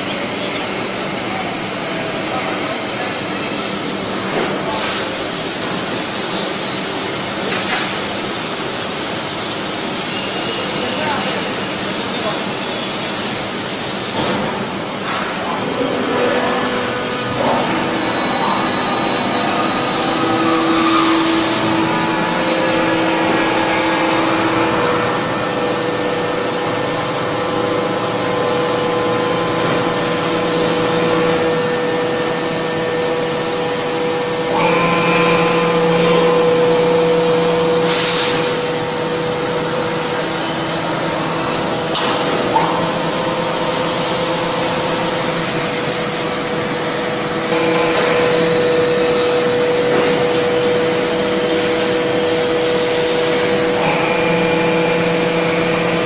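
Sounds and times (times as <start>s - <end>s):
machinery drone: 10.1s - 56.0s.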